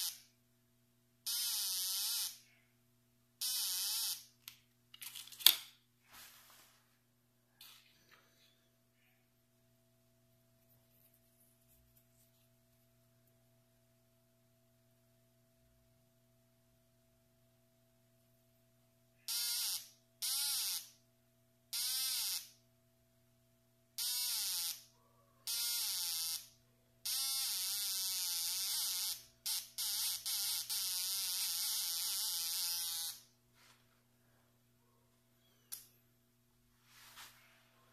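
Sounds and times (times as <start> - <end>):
metal detector buzzer tone: 0.0 - 0.3, 1.3 - 2.4, 3.4 - 4.3, 19.2 - 21.0, 21.7 - 22.6, 24.0 - 24.9, 25.5 - 33.3
faint steady hum: 0.0 - 37.9.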